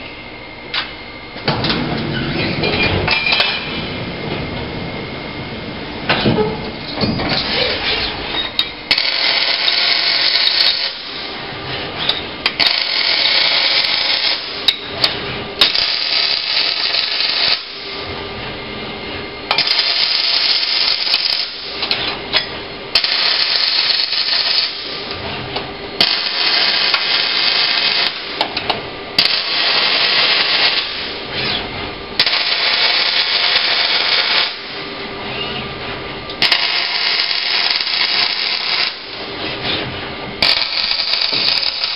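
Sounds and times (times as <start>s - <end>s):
welding arc crackling: 3.3s - 11.4s, 12.4s - 14.6s, 15.6s - 17.9s, 19.6s - 21.8s, 22.9s - 25.1s, 26.0s - 28.4s, 29.2s - 31.2s, 32.2s - 34.8s, 36.4s - 39.2s, 40.4s - 41.9s.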